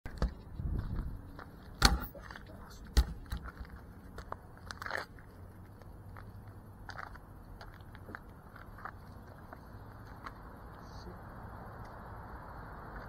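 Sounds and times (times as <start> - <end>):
sharp thumps: 1.8 - 2.2.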